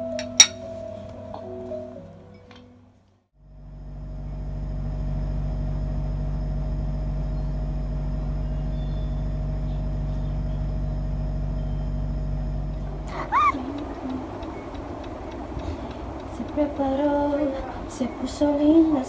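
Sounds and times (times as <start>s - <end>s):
steady low hum: 3.4s - 19.0s
kitten meowing: 13.1s - 13.6s.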